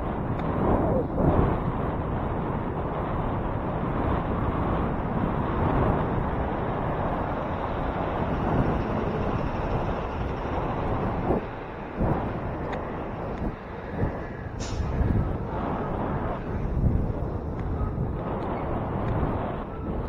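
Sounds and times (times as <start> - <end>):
road noise: 0.0 - 20.0
rushing wind: 0.0 - 20.0.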